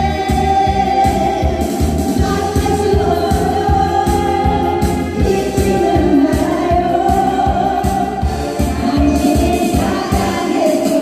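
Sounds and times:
amplified backing track with beat: 0.0s - 11.0s
women singing into microphones: 0.0s - 11.0s.

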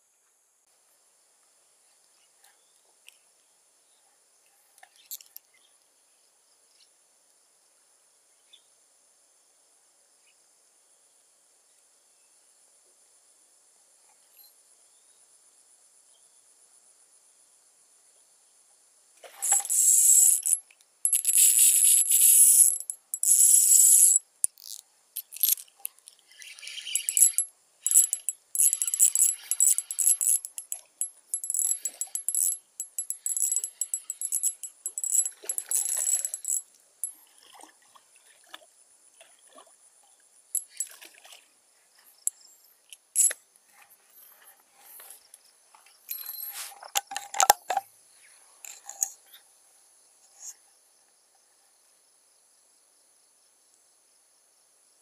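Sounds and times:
insects trilling: 19.3s - 36.6s
jangly metallic rattling: 26.9s - 36.6s.

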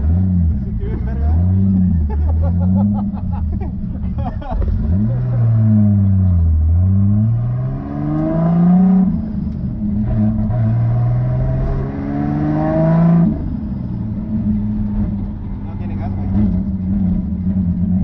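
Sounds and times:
car engine revving hard: 4.4s - 15.2s.

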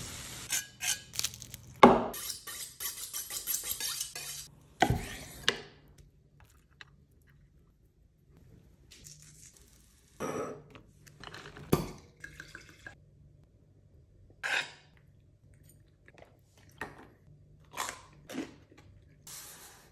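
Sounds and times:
knife and fork on slate board: 0.5s - 1.5s, 2.1s - 5.5s
roast potatoes crunching: 0.8s - 1.8s.

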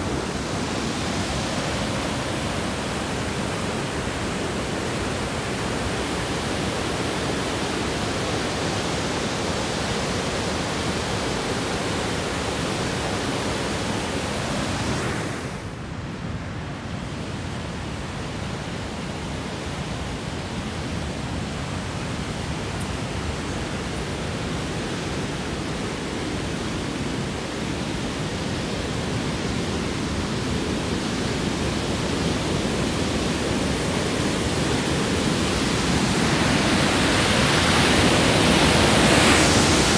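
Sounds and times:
river rapids rushing: 0.0s - 16.1s, 17.1s - 39.9s.

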